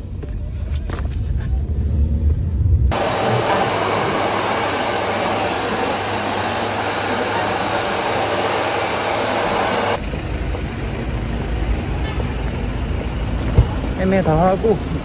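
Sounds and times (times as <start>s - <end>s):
low rumble: 0.4s - 3.5s
hair dryer blowing: 2.9s - 10.0s.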